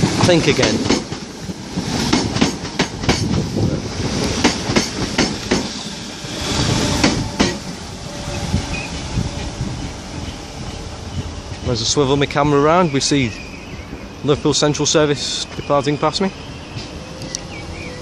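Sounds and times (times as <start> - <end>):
train wheels clacking over rail joints: 0.0 - 3.5, 4.2 - 5.8, 6.5 - 7.7
electric train rumbling past: 0.0 - 18.0.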